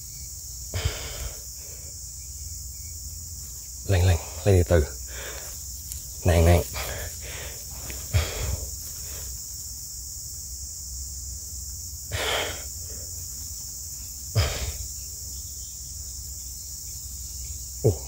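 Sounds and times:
crickets and insects chirring: 0.0s - 18.0s
short breathy noises: 0.7s - 2.0s.

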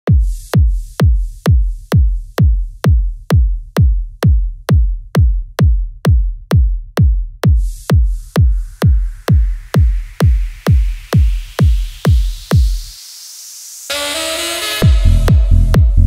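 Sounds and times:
drum machine kick: 0.0s - 13.0s, 14.8s - 16.0s
high hiss: 12.2s - 14.8s.

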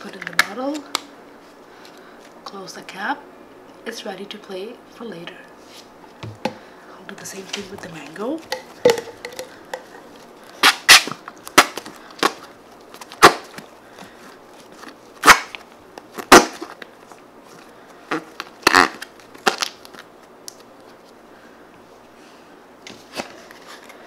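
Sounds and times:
slime squeezing with sticky pops: 18.1s - 20.6s.

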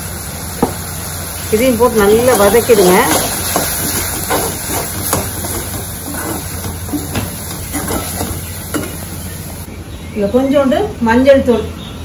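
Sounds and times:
food sizzling in a pan: 0.0s - 9.7s
spatula scraping a pan: 2.2s - 9.0s.

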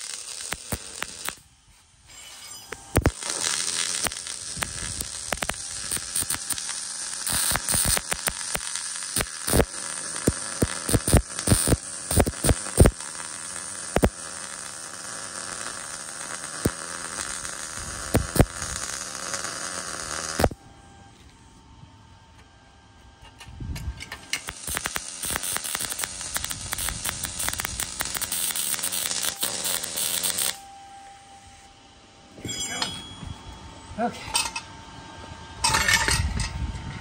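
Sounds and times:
welding arc hissing: 0.0s - 1.5s, 2.8s - 20.6s, 24.2s - 30.6s
spatter popping: 2.9s - 20.6s, 24.4s - 30.6s.

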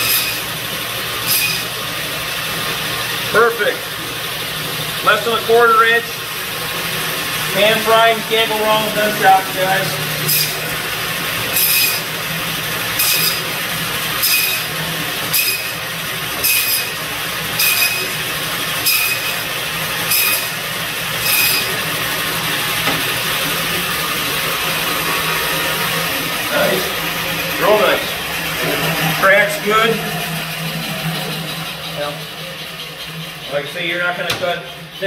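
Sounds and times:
saw blade cutting meat: 0.0s - 0.6s, 1.2s - 1.9s, 8.4s - 12.2s, 12.8s - 22.1s
meat band saw running: 0.0s - 35.0s.

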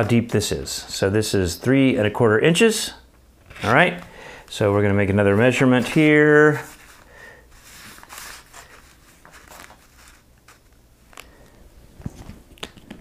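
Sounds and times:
paper rustling and sliding: 3.4s - 4.1s, 5.7s - 12.4s.

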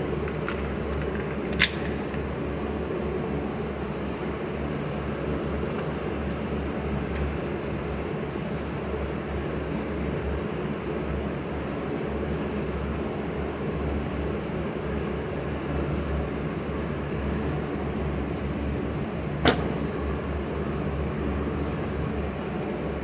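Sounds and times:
ventilation rumble and hum: 0.0s - 23.0s.

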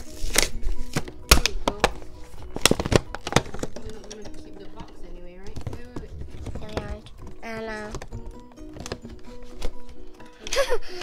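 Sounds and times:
packaging cracking and snapping: 0.0s - 4.4s
background music: 0.0s - 11.0s.

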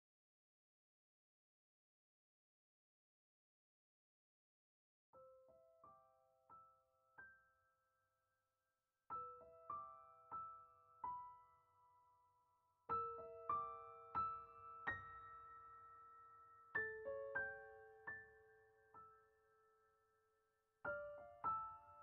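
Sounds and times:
soft piano music: 5.1s - 8.0s, 9.1s - 22.0s.

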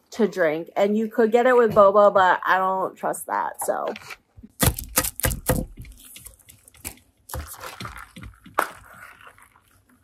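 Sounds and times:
plastic film crinkling: 4.1s - 10.0s.

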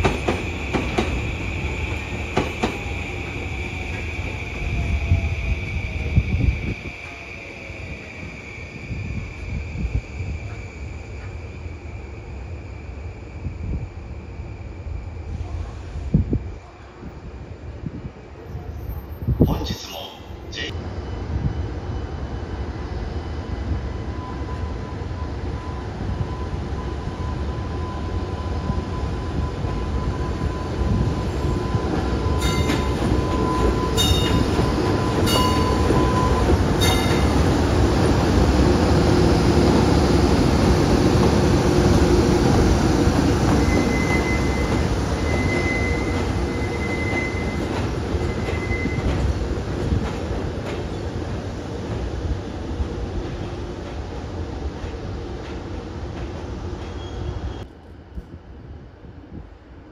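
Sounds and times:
locomotive rumbling over rails: 25.4s - 57.6s
wheels squealing: 43.5s - 49.3s.

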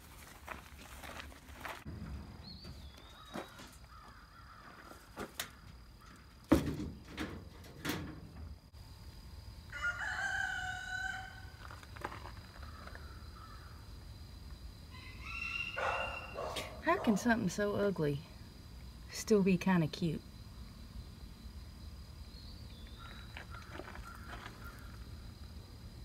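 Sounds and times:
rooster crowing: 9.7s - 11.6s, 14.9s - 16.6s.

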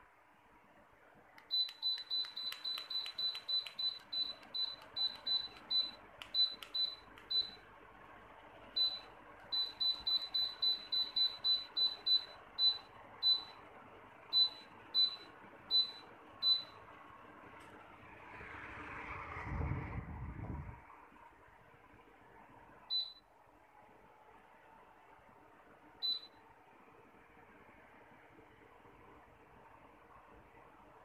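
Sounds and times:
short high beeps: 1.5s - 7.6s, 8.8s - 13.6s.

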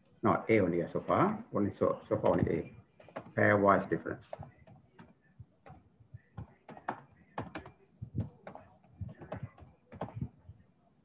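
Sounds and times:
computer keyboard typing: 6.4s - 10.4s.

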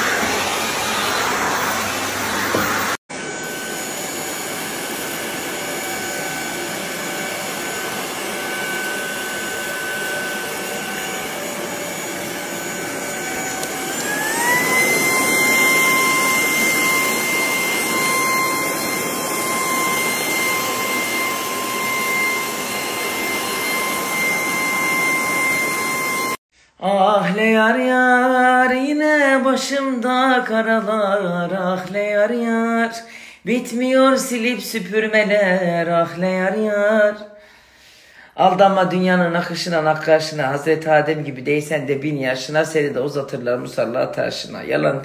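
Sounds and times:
floor cleaner vacuum whine: 0.0s - 26.4s.

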